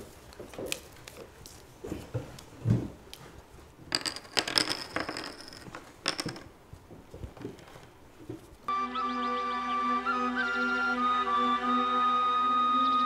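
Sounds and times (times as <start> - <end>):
poker chips clattering: 3.9 - 6.5.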